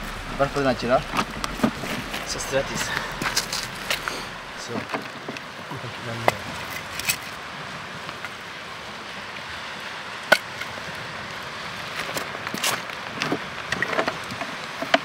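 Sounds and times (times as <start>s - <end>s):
wood knocking on stones: 0.0s - 5.5s
steady background hiss: 0.0s - 15.0s.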